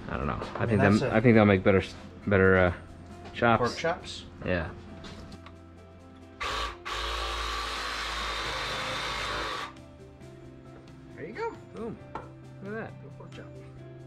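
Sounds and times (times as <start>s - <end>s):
background music: 0.0s - 14.0s
reciprocating saw cutting bone: 6.4s - 9.8s.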